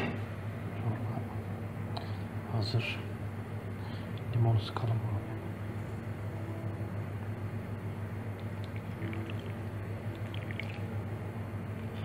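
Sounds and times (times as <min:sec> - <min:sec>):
steady low hum: 0:00.0 - 0:12.0
juice dripping into soup: 0:08.3 - 0:11.1.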